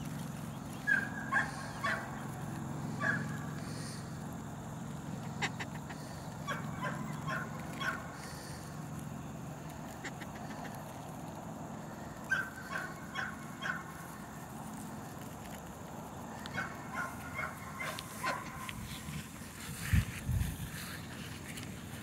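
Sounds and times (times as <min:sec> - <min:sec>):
puppies squeaking and yipping: 0:00.7 - 0:02.2, 0:05.2 - 0:08.6, 0:09.9 - 0:10.9, 0:12.2 - 0:14.0.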